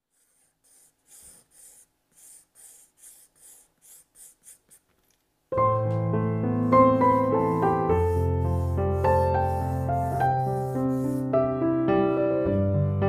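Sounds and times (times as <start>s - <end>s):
pencil sketching on paper: 0.0s - 5.0s, 6.3s - 11.6s
piano music: 5.5s - 13.0s.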